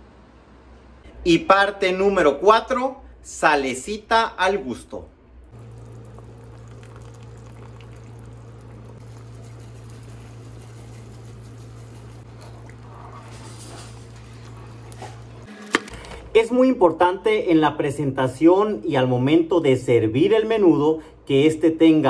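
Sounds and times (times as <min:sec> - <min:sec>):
steady low hum: 0:05.4 - 0:15.5
broth bubbling in a pot: 0:05.5 - 0:15.5.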